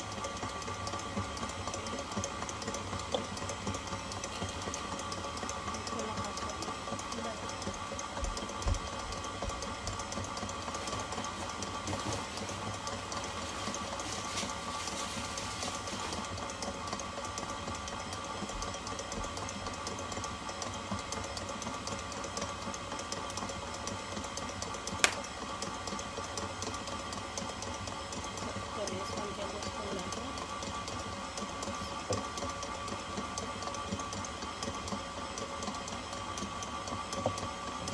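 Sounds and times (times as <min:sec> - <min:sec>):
stand mixer motor hum: 0:00.0 - 0:37.9
sharp click: 0:25.0 - 0:25.3.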